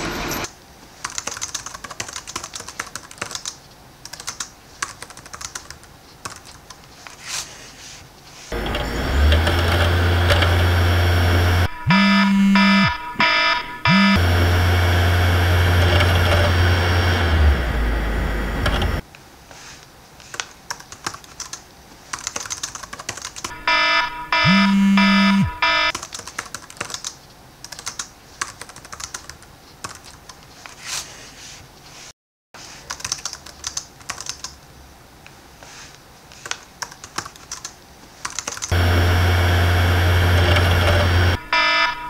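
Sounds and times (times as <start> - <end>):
rapid irregular clicking: 0.8 - 7.2, 20.2 - 23.6, 25.9 - 30.8, 32.8 - 34.6, 36.3 - 38.8
loud steady low hum: 8.6 - 19.0, 23.6 - 25.9, 38.7 - 42.0
electronic buzzer beeps: 11.0 - 14.3, 23.5 - 25.9, 40.4 - 42.0.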